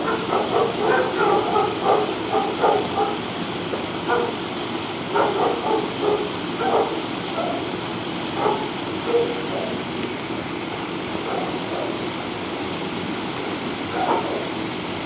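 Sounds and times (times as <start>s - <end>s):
dog barking: 0.0s - 3.2s, 4.1s - 4.4s, 5.1s - 7.7s, 8.4s - 9.8s, 11.2s - 12.0s, 13.9s - 14.5s.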